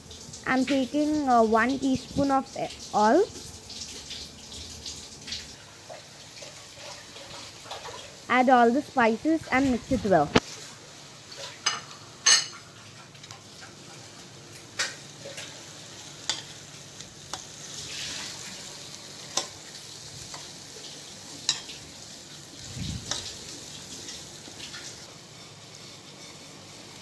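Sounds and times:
onions sizzling in oil: 0.0 - 27.0.

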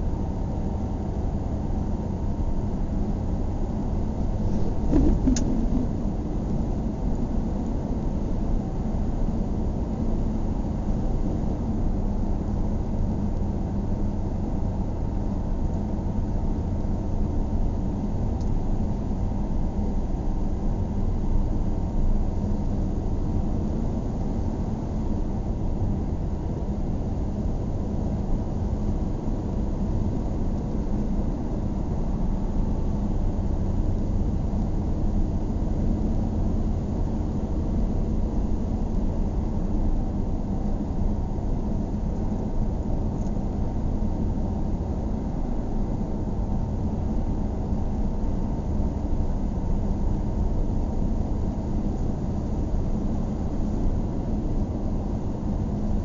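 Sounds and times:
car road noise from inside: 4.4 - 6.2.

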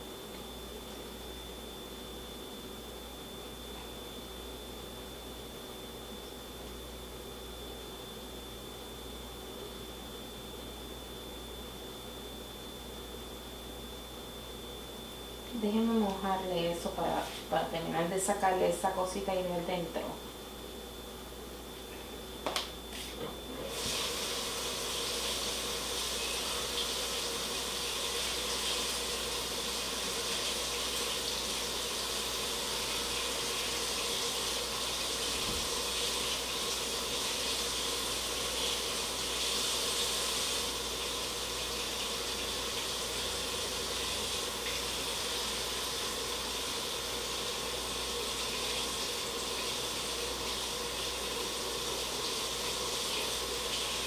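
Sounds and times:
tap water running: 23.5 - 54.0.

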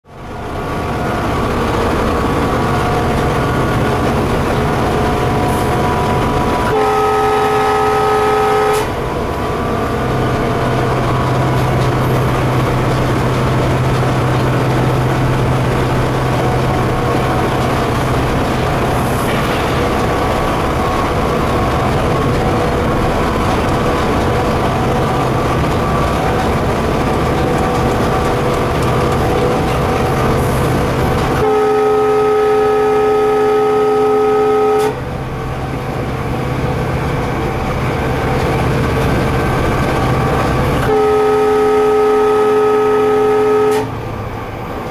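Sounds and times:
wheel and track noise: 0.0 - 44.9
diesel engine droning: 0.1 - 44.9
locomotive horn chord: 6.5 - 10.0, 31.2 - 35.1, 40.8 - 44.0.

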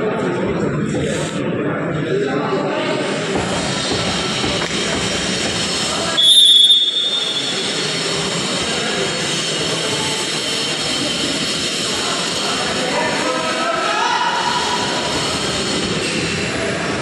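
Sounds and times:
hall background noise: 0.0 - 17.0
referee's whistle blast: 6.2 - 7.9.

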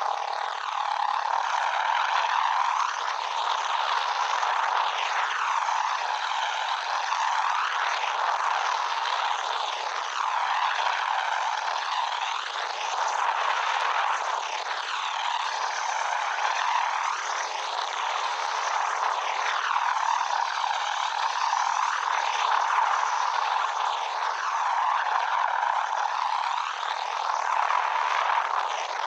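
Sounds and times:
helicopter engine and rotor: 10.0 - 22.1, 23.7 - 28.5.

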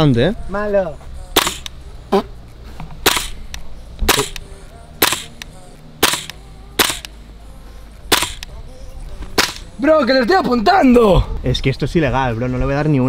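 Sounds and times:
airsoft gun shots: 1.4 - 1.7, 3.0 - 4.4, 5.0 - 5.4, 6.0 - 7.1, 8.1 - 8.5, 9.4 - 9.7.

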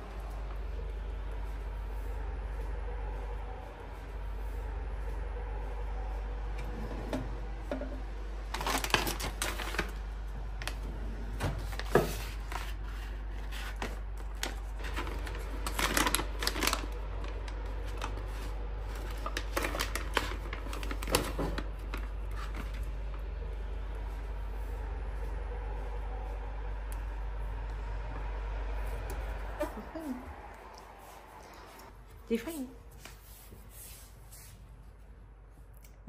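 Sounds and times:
plastic pouch crinkling: 8.5 - 10.0, 14.2 - 22.8.

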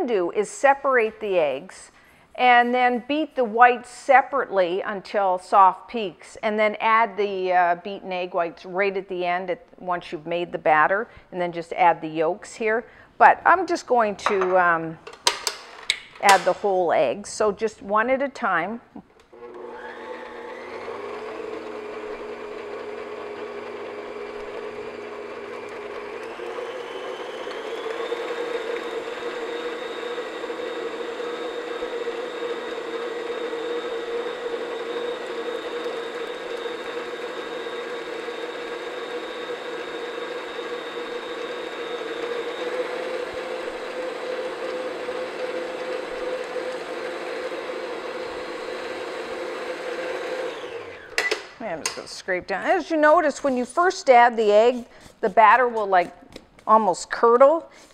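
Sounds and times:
stand mixer motor whine: 19.3 - 51.5.

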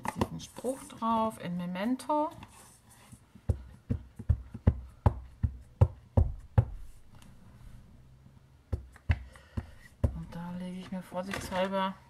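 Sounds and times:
stamp knocking on ink pad: 3.5 - 6.8.

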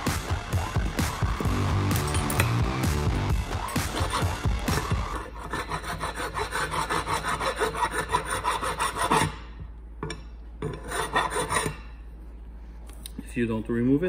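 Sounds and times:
steel tool scraping rust off metal: 3.5 - 9.4, 10.0 - 12.0.

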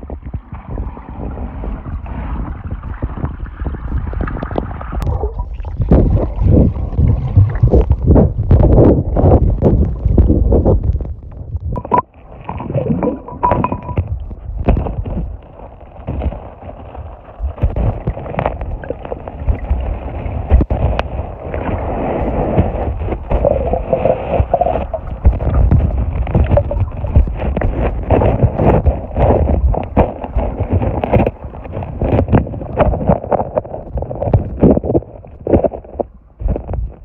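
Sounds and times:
underwater gurgling and sloshing: 0.0 - 37.0
knocks and thumps: 13.0 - 15.2.

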